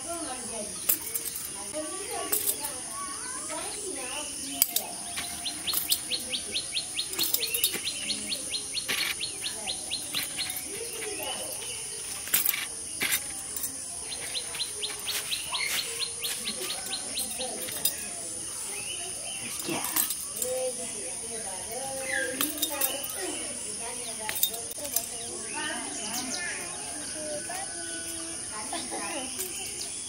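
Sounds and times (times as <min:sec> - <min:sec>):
high insect whine: 0:00.0 - 0:30.0
small birds chirping: 0:00.0 - 0:30.0
bird trilling dry ticks: 0:02.3 - 0:20.8.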